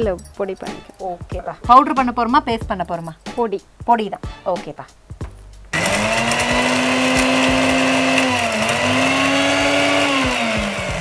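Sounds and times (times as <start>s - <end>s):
mixer grinder motor whine: 5.8s - 11.0s.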